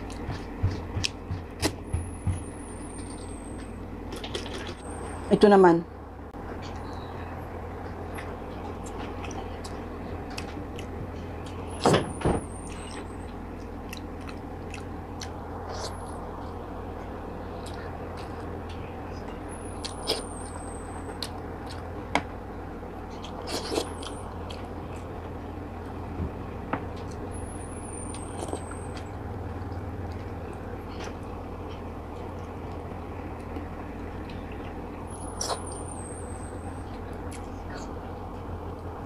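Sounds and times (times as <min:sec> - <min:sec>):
steady low hum: 0:00.0 - 0:39.0
mouth sounds chewing: 0:12.7 - 0:21.9.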